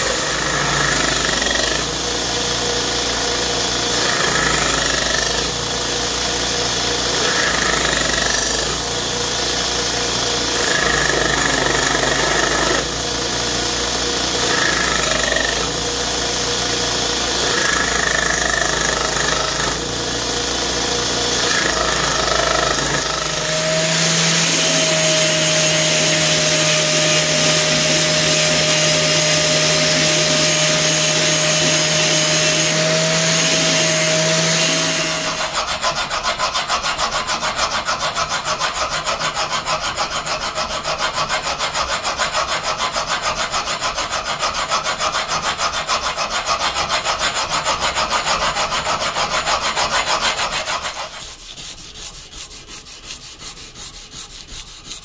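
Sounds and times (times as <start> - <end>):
belt grinder humming: 0.0 - 55.0
abrasive scrubbing a steel blade: 23.2 - 55.0.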